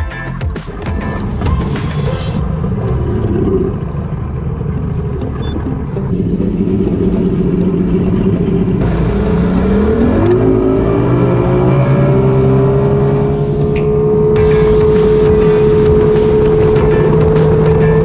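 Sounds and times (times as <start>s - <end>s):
outboard motor running: 1.3s - 10.7s.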